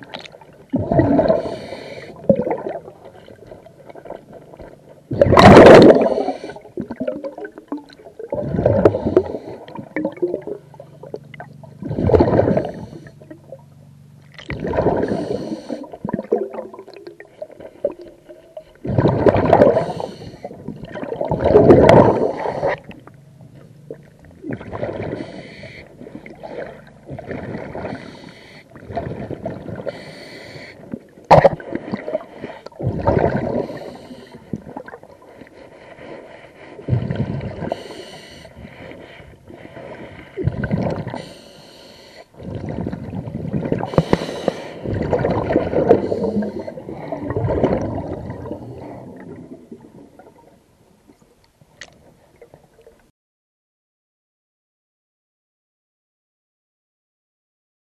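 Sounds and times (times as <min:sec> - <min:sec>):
bubbling exhalations: 0:00.0 - 0:04.4, 0:05.1 - 0:13.4, 0:14.4 - 0:17.2, 0:18.8 - 0:23.1, 0:24.0 - 0:30.2, 0:30.8 - 0:35.1, 0:36.9 - 0:38.8, 0:40.0 - 0:41.3, 0:42.4 - 0:50.4
diver breathing through regulator: 0:01.0 - 0:02.3, 0:05.8 - 0:06.8, 0:08.4 - 0:10.0, 0:11.8 - 0:13.3, 0:14.9 - 0:16.0, 0:19.6 - 0:20.6, 0:21.8 - 0:23.0, 0:24.9 - 0:30.9, 0:31.6 - 0:34.6, 0:35.2 - 0:47.4.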